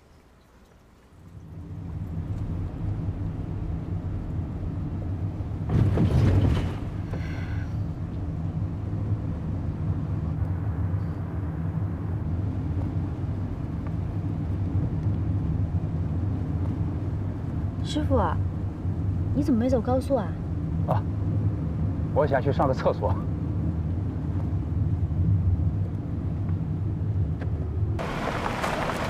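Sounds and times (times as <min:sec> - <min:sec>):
car engine and road noise: 0:01.0 - 0:29.0.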